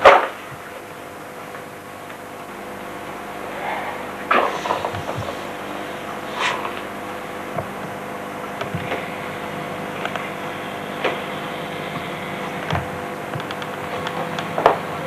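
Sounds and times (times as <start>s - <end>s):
background hiss and hum: 0.0s - 15.0s.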